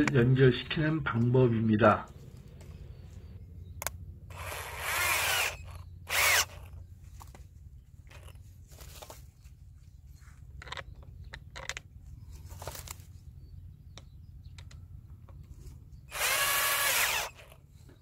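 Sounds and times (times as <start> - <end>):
cordless drill boring: 4.3 - 6.7, 16.1 - 17.6
light clicks and knocks from handling: 10.2 - 13.0.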